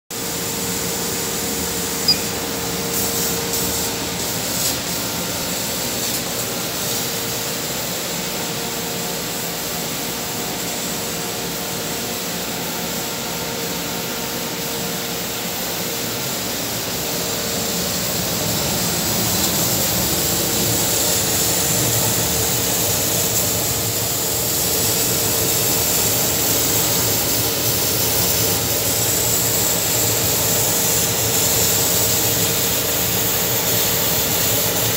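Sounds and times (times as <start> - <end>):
laser cutter whirring: 0.2 - 34.9
short click: 2.0 - 2.4.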